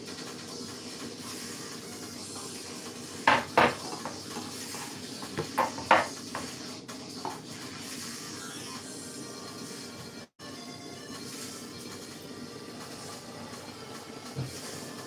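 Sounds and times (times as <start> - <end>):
wooden board knocking on counter: 3.3 - 4.2, 5.3 - 6.5.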